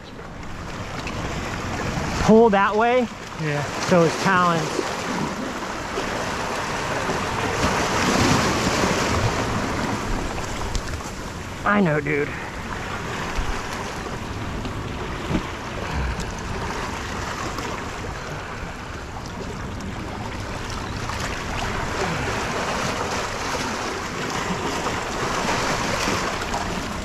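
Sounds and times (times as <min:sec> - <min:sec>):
surf splashing over rocks: 0:00.3 - 0:27.0
wind noise on microphone: 0:13.2 - 0:17.8.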